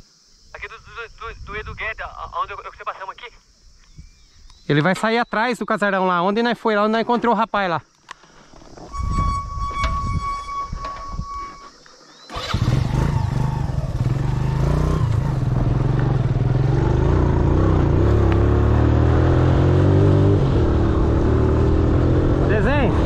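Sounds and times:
vehicle engine running: 0:12.4 - 0:19.8.

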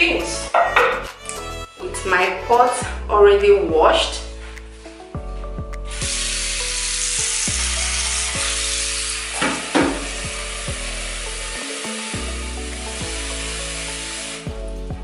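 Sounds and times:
background music: 0:00.0 - 0:15.0
water running from tap into pot: 0:06.0 - 0:14.5.

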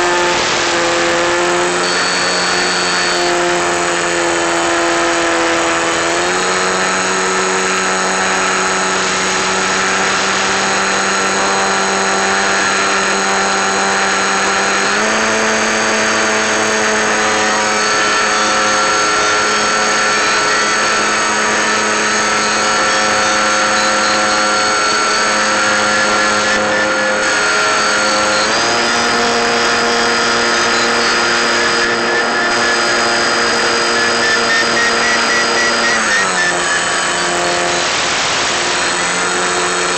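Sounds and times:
model plane motor whine: 0:00.0 - 0:39.9.

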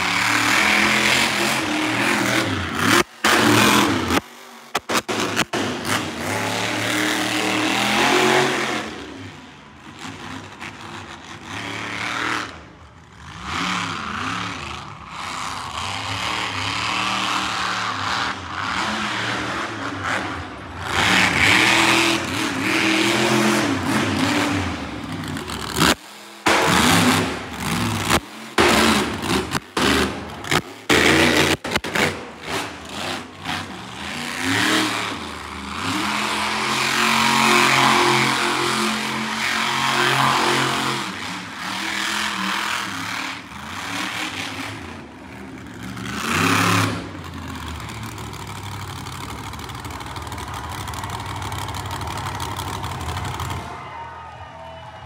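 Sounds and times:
truck engine revving: 0:00.0 - 0:53.8.

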